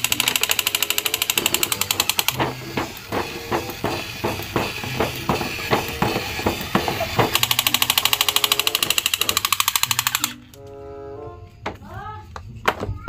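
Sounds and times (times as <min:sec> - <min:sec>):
toy electronic gunfire: 0:00.0 - 0:10.4.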